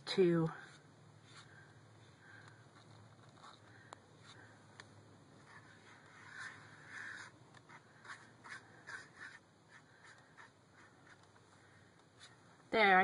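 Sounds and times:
pen scratching on paper: 5.4 - 11.4.

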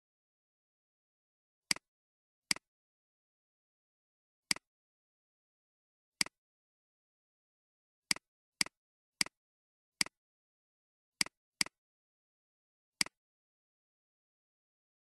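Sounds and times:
computer mouse clicks: 13.0 - 13.2.

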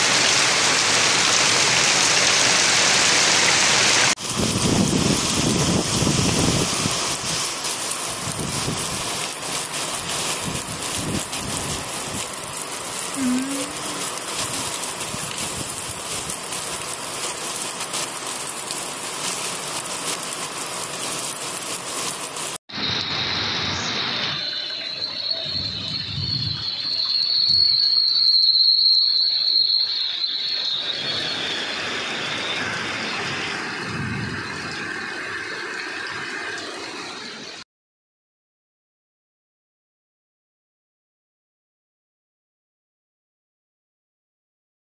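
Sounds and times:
floodwater running: 0.0 - 37.6
heavy rain hissing on a street: 0.0 - 37.6
high-pitched insect-like whine: 8.1 - 17.1, 22.8 - 33.6.

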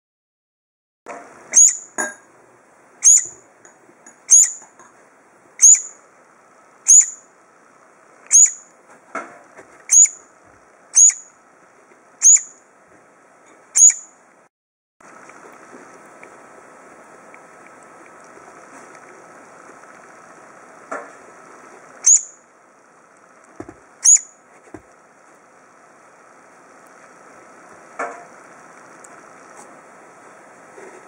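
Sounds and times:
bird nestling begging calls: 1.6 - 1.8, 3.0 - 3.3, 4.3 - 4.6, 5.6 - 5.9, 6.9 - 7.2, 8.3 - 8.6, 9.9 - 10.2, 11.0 - 11.2, 12.2 - 12.5, 13.8 - 14.0, 22.0 - 22.3, 24.0 - 24.2.

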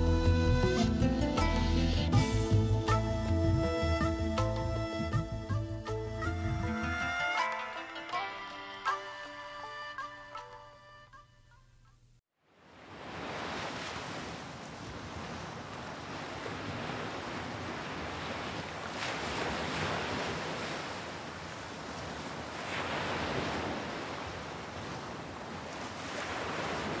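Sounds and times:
ocean waves washing in: 12.5 - 27.0.

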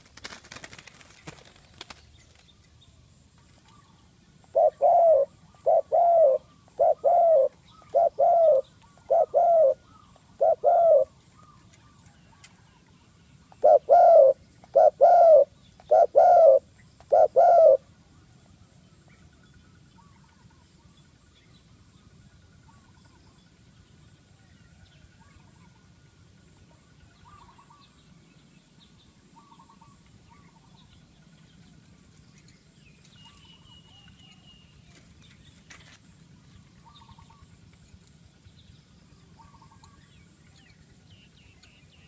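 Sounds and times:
dove cooing: 4.4 - 12.7, 13.5 - 17.9.

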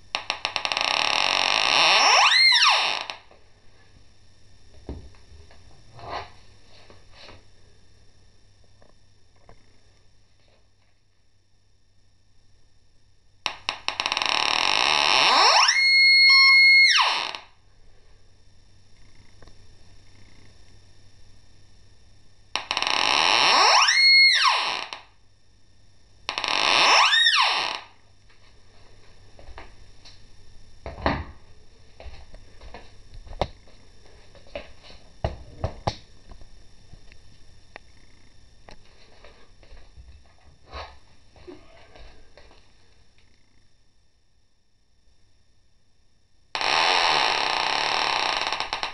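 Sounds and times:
metal detector crackling buzz: 0.0 - 3.4, 13.4 - 17.6, 22.5 - 25.2, 26.3 - 28.0, 46.5 - 48.9
faint steady hiss: 17.1 - 23.8.

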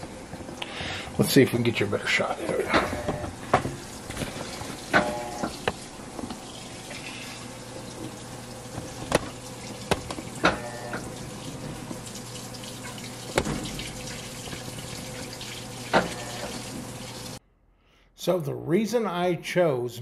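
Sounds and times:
water splashing into tub: 3.0 - 17.4.

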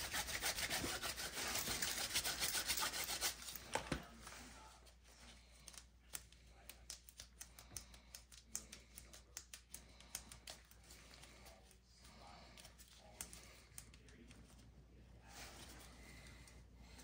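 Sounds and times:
gloved hands clicking and crinkling: 5.5 - 11.9.

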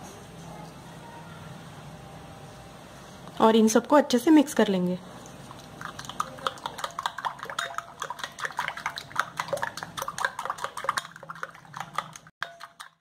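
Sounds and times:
wet slapping of beaten eggs: 5.2 - 13.0
spoon clicking against glass bowl: 6.1 - 11.2, 11.8 - 13.0.

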